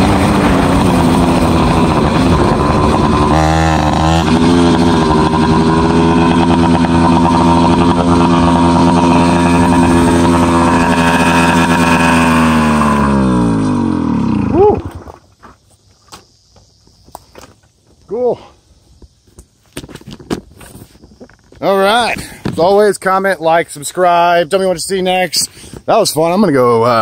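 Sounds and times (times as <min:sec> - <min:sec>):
two-stroke bicycle engine running: 0:00.0 - 0:15.1.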